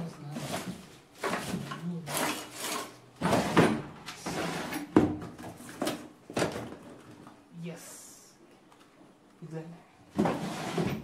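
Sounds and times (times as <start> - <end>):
objects scraping and rustling: 0.0 - 7.4, 10.1 - 11.0.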